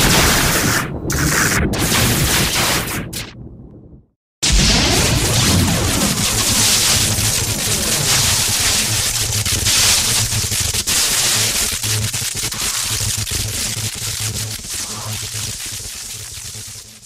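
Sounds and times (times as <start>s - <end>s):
electric sparks crackling: 4.4s - 17.0s.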